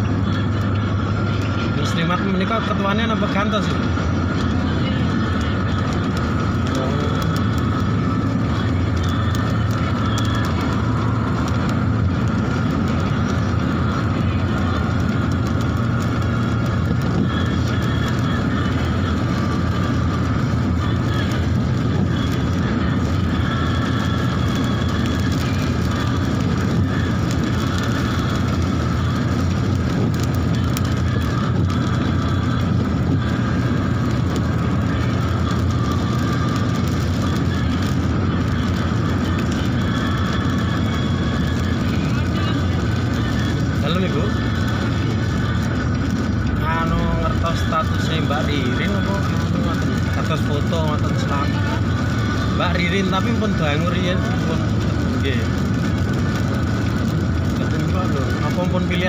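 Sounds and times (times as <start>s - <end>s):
car road and engine drone: 0.0s - 59.0s.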